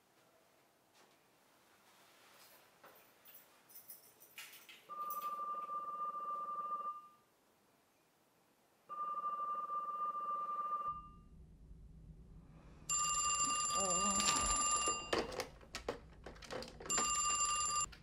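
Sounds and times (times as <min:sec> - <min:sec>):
desk telephone ringing: 0:04.9 - 0:07.2, 0:08.9 - 0:11.2, 0:12.9 - 0:15.6, 0:16.2 - 0:17.9.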